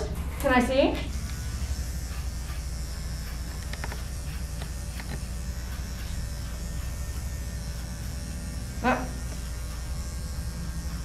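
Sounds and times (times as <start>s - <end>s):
electric clipper buzzing: 0.0s - 11.0s.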